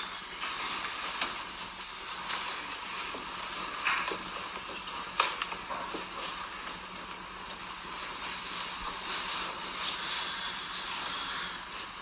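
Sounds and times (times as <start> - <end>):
room noise hiss: 0.0 - 12.0.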